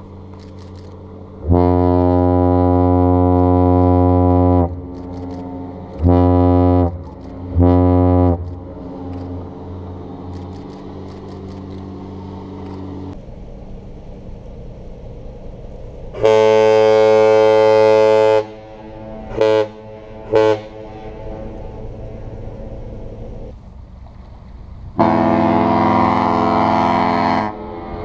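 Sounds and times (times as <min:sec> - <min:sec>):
low steady rumble: 0:00.0 - 0:28.0
ship horn blasts: 0:01.4 - 0:10.3, 0:16.1 - 0:23.4, 0:25.0 - 0:28.0.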